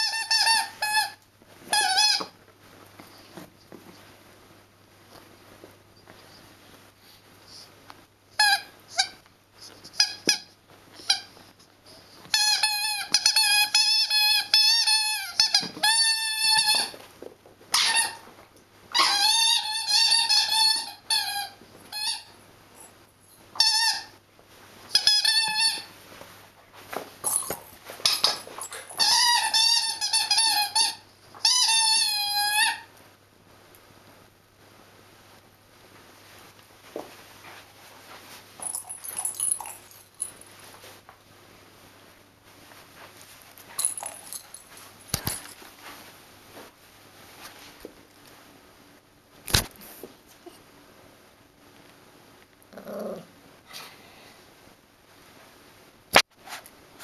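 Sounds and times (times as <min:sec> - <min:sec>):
squeaky toy ball squeaking: 0:00.0 - 0:02.4, 0:08.4 - 0:09.2, 0:09.9 - 0:11.3, 0:12.3 - 0:17.0, 0:17.7 - 0:18.2, 0:18.9 - 0:22.4, 0:23.6 - 0:24.2, 0:24.9 - 0:25.9, 0:27.3 - 0:32.9.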